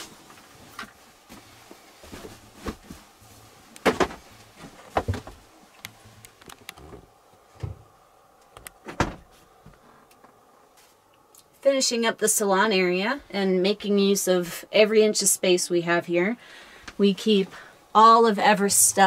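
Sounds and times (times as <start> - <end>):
cushions thumping onto table: 3.8 - 4.2.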